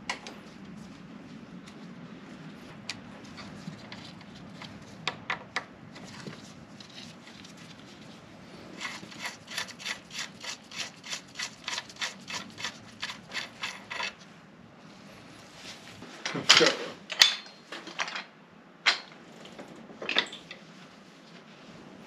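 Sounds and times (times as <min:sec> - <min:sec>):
ratchet rasping strokes: 0:08.8 - 0:14.2.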